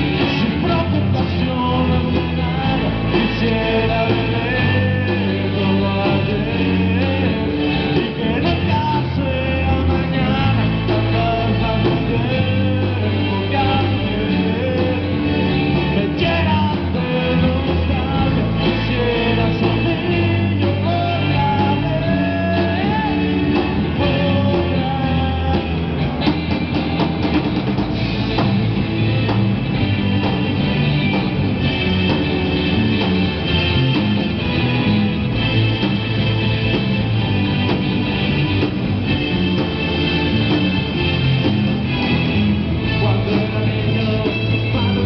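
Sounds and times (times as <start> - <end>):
man singing: 0.0 - 26.1, 42.7 - 45.0
drum kit: 0.0 - 45.0
electric guitars: 0.0 - 45.0.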